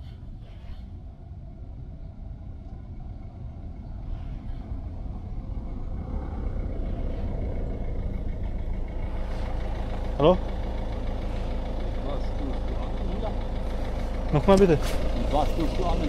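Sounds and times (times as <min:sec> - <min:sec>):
steady engine hum: 0:00.0 - 0:16.0
vehicle engine rumble approaching: 0:00.0 - 0:16.0.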